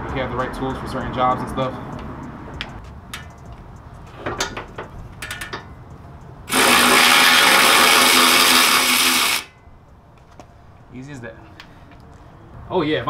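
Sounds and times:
tools clicking and knocking: 1.9s - 6.3s
cordless power tool running: 6.5s - 9.5s.

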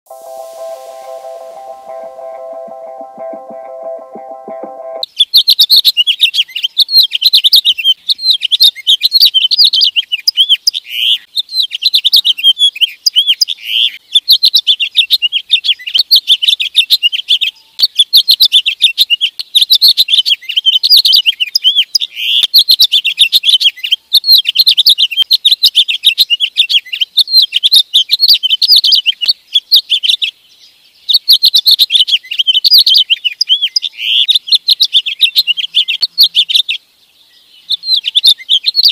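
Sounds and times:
intro music: 0.1s - 5.0s.

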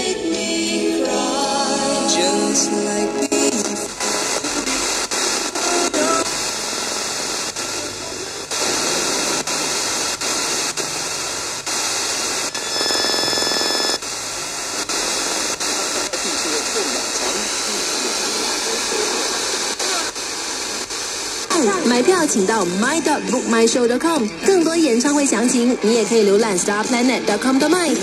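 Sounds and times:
snatches of broadcast voices: 1.1s - 28.0s
radio static hissing: 1.2s - 28.0s
radio tuning dial clicks: 3.5s - 14.1s.

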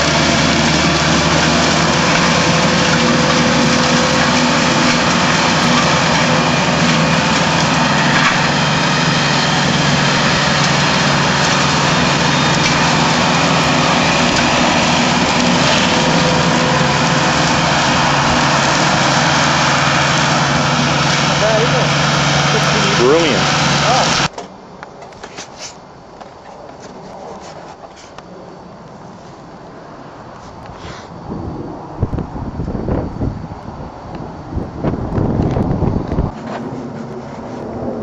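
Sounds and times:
mulcher shredding brush: 0.0s - 24.4s, 34.8s - 38.0s
tractor diesel engine under load: 0.0s - 24.7s, 28.8s - 38.0s.

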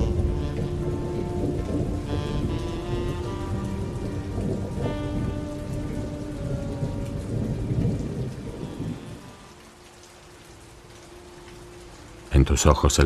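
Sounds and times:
rumble of thunder: 0.0s - 9.5s
held musical notes: 0.0s - 13.0s
rain falling: 0.0s - 13.0s.

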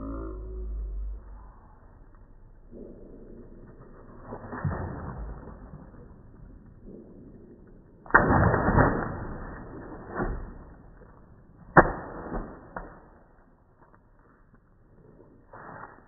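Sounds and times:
water balloon slapping on stone: 11.7s - 13.2s.

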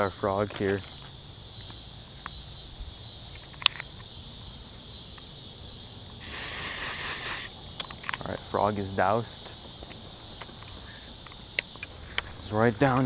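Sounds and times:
insect noise: 0.0s - 13.0s
aerosol spray hissing: 6.2s - 7.6s.

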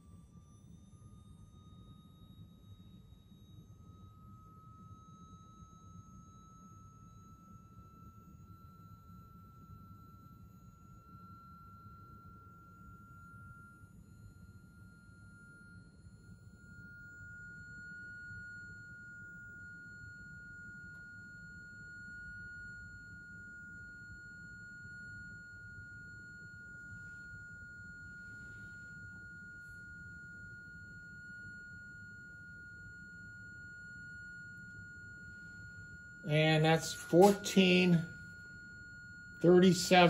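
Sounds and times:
high-pitched pure tone: 10.1s - 40.0s.

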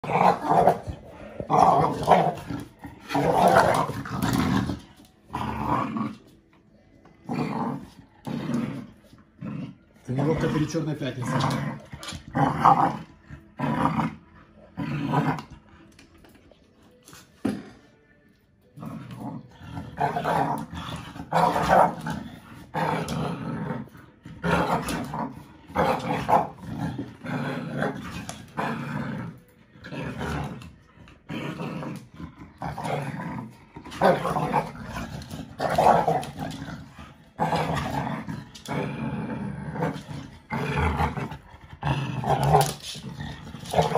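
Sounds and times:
puppy play growling: 0.0s - 43.9s.

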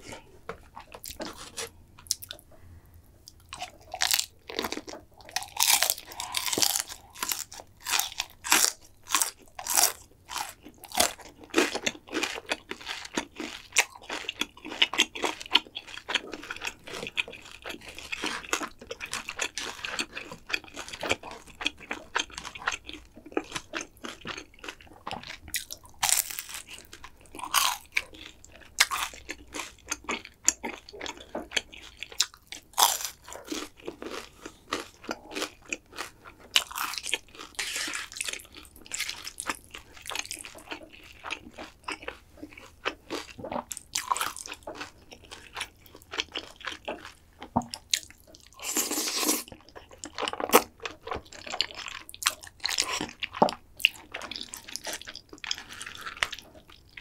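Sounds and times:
wet chewing of noodles: 0.0s - 2.6s, 3.2s - 57.0s
crunchy bites: 3.5s - 15.4s, 27.4s - 49.5s.

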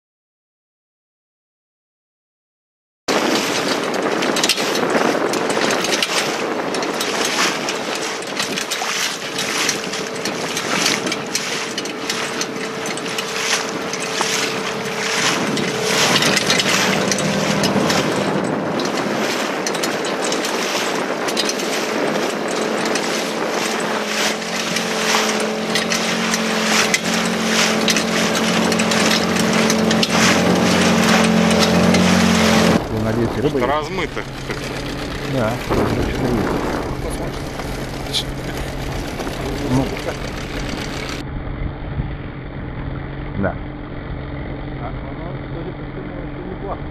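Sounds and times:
boat motor running: 3.1s - 46.9s
choppy water against hull: 3.1s - 46.9s
deep engine hum: 3.1s - 46.9s
wind on microphone: 3.1s - 46.9s.

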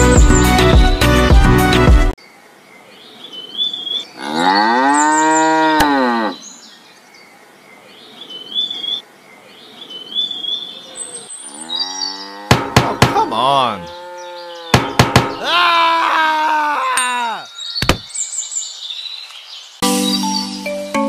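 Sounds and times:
small birds chirping: 2.2s - 20.9s
cow mooing: 4.2s - 6.4s, 11.5s - 12.8s, 13.6s - 14.8s.

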